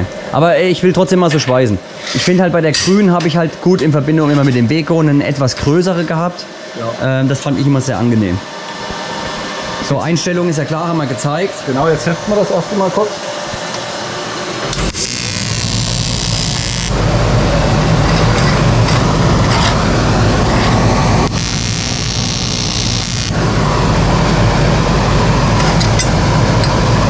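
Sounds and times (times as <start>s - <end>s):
welding arc buzz: 13.1s - 27.0s
bright hiss: 19.9s - 23.6s.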